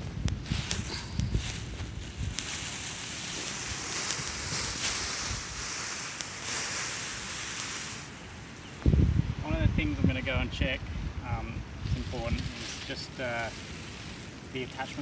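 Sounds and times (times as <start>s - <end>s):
wind buffeting microphone: 0.0s - 7.4s, 8.6s - 14.6s
paraglider fabric rustling: 0.0s - 8.2s.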